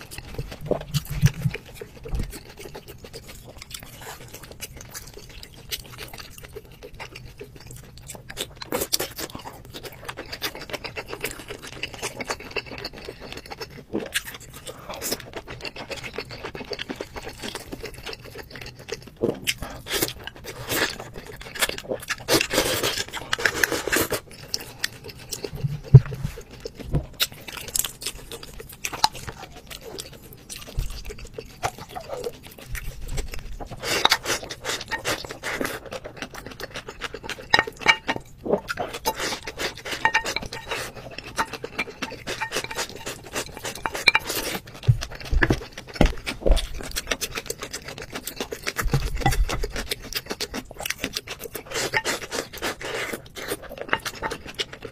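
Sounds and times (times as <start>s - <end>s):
wet chewing: 0.0s - 54.9s
chopsticks and spoons clinking on bowls: 36.4s - 45.6s, 51.6s - 54.9s.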